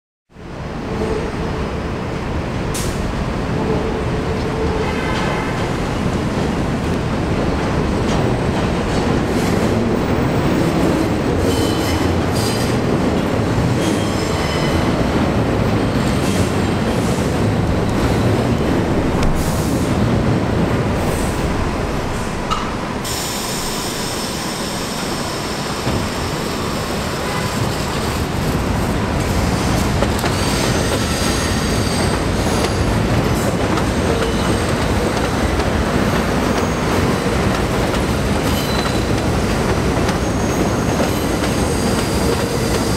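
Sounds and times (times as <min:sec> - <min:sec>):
train wheels rumbling on steel structure: 0:02.7 - 0:42.9
wheel squeal: 0:38.4 - 0:39.1.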